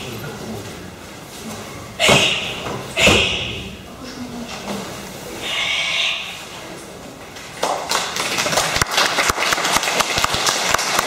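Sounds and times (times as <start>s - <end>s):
people clapping: 7.3s - 11.0s.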